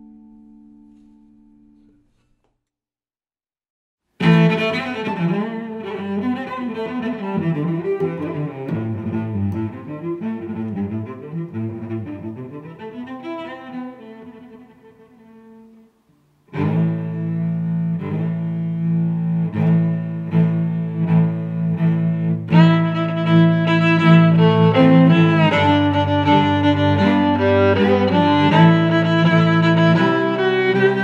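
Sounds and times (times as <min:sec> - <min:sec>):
instrumental background music: 0:16.5 - 0:31.0.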